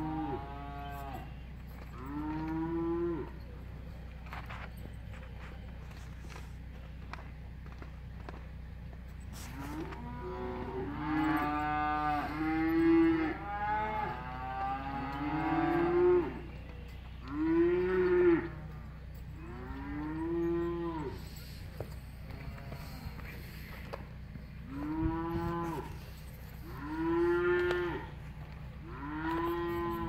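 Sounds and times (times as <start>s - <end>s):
cattle mooing: 0.0s - 3.5s, 9.4s - 21.5s, 22.2s - 23.7s, 24.6s - 30.0s.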